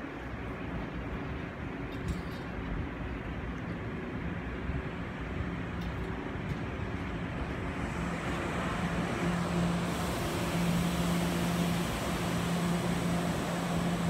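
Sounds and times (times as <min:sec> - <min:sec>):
train rumbling: 0:00.0 - 0:14.0
low electric hum: 0:06.7 - 0:14.0.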